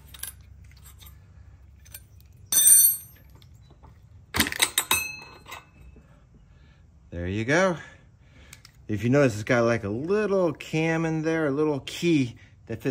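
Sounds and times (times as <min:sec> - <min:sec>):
metal tools clinking: 0:00.0 - 0:06.0.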